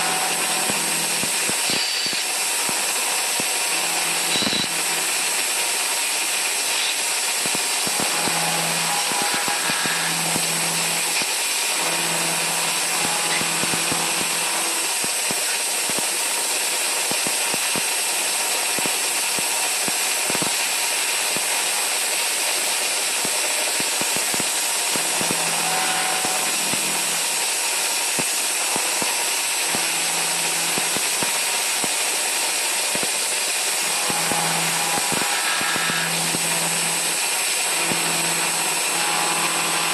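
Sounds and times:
lathe high hiss: 0:00.0 - 0:39.9.

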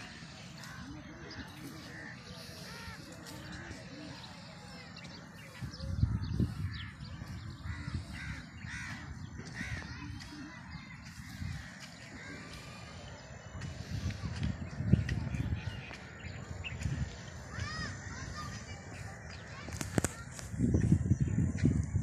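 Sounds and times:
crows cawing: 0:07.6 - 0:10.0.

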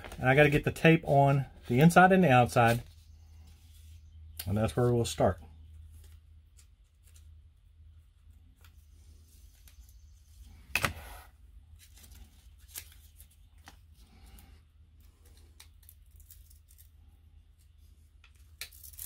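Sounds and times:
tape clicks and rustles: 0:11.7 - 0:14.4, 0:15.0 - 0:19.0.

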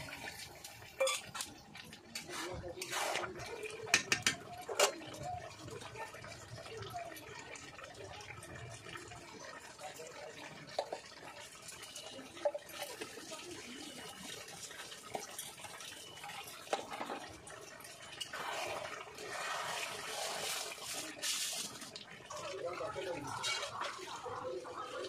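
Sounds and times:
metal spatula stirring pan: 0:00.0 - 0:05.0, 0:23.2 - 0:24.4
curry sizzling in a metal pan: 0:00.0 - 0:06.1, 0:09.0 - 0:25.0.

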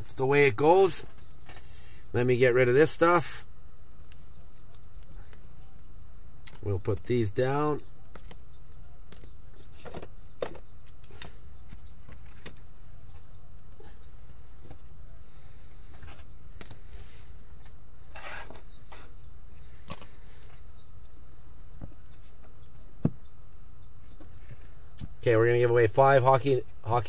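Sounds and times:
steady low hum: 0:00.0 - 0:27.0
cards clicking and rustling: 0:08.1 - 0:08.4.

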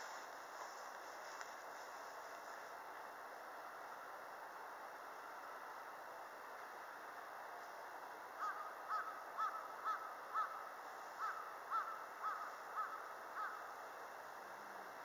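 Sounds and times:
steady hiss: 0:00.0 - 0:15.0
bird calling: 0:08.4 - 0:13.8.

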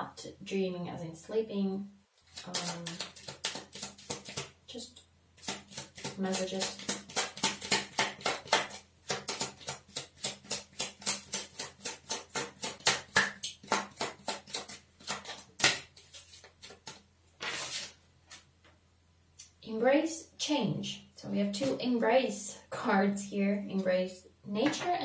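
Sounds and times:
cards being shuffled: 0:02.2 - 0:04.5, 0:05.4 - 0:18.5.

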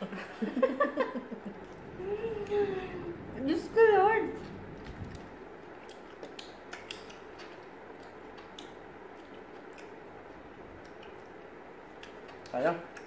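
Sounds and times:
clicks and ticks of eating: 0:04.8 - 0:13.0.

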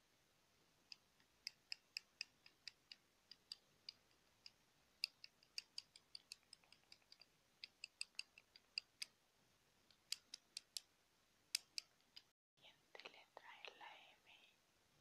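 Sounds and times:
taps and clicks on pencils: 0:00.9 - 0:09.2, 0:09.9 - 0:10.9, 0:11.5 - 0:12.3.

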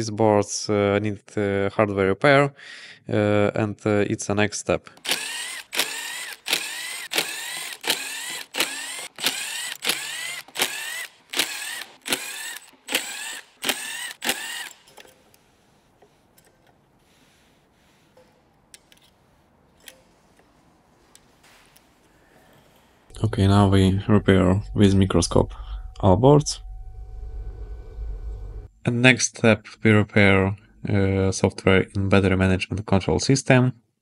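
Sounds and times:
cordless screwdriver whirring: 0:05.0 - 0:17.5.

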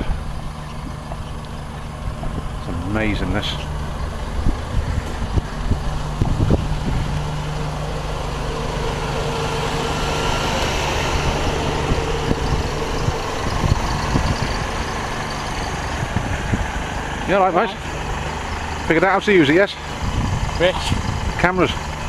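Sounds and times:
motorcycle engine running: 0:00.0 - 0:22.0
wind on microphone: 0:03.5 - 0:17.2, 0:19.9 - 0:21.5.

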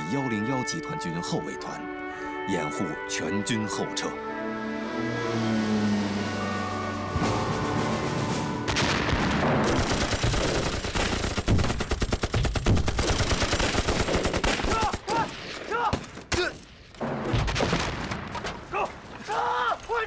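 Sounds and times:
low rumble of blasts: 0:03.4 - 0:11.6
rapid gunfire: 0:08.7 - 0:15.6.

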